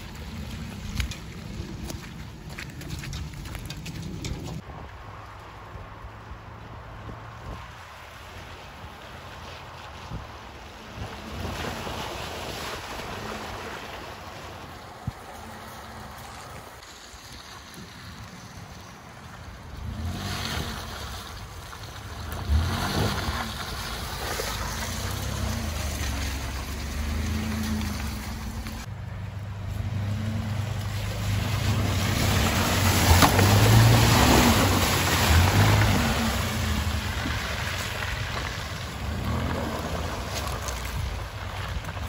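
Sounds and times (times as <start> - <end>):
tyres working through mud: 0.0 - 42.0
truck engine revving: 22.2 - 40.9.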